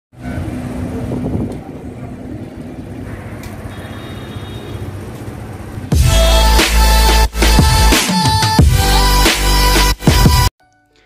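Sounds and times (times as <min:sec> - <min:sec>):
vehicle engines rumbling: 0:00.2 - 0:06.4.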